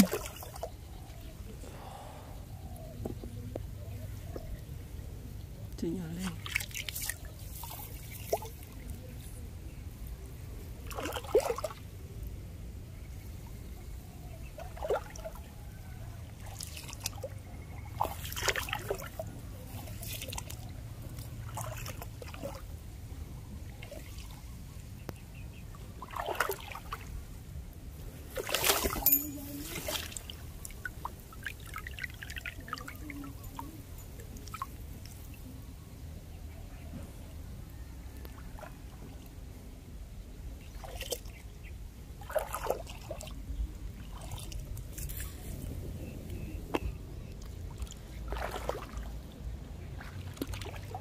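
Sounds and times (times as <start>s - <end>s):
shallow water splashing: 0.0s - 0.8s, 6.1s - 9.2s, 10.8s - 11.9s, 14.5s - 15.5s, 16.3s - 22.8s, 25.7s - 27.5s, 28.2s - 35.4s, 40.6s - 41.5s, 42.2s - 45.6s, 46.8s - 51.0s.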